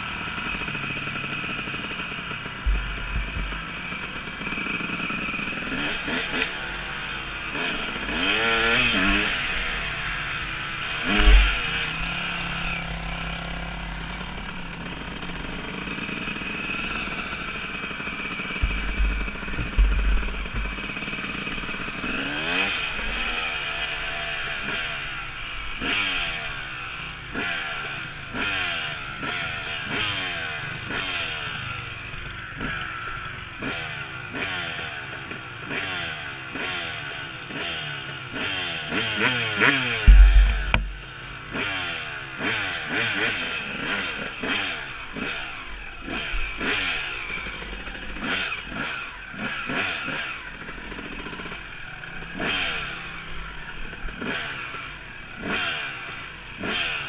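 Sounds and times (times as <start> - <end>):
dirt bike engine revving: 0.0 - 57.0
knocks and clatter: 18.6 - 21.0, 40.1 - 41.0
loud low thump: 40.1 - 41.0.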